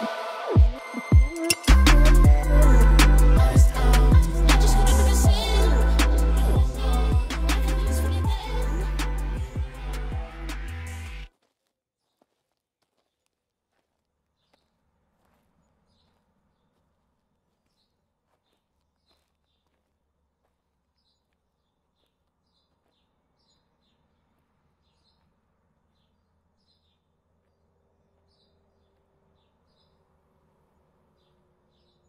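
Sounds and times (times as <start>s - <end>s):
low rumble: 0.6s - 11.3s
small birds chirping: 14.3s - 32.0s.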